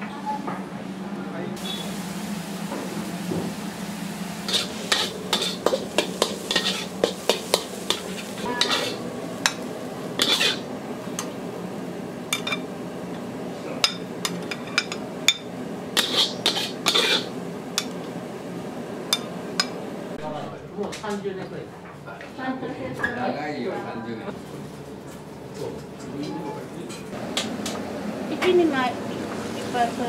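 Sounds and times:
steady low hum: 0.0 - 20.7.

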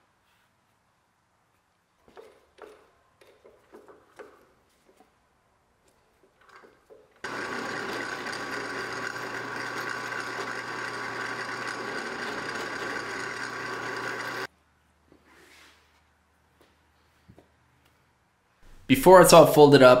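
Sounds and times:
drill press humming: 6.4 - 14.5.

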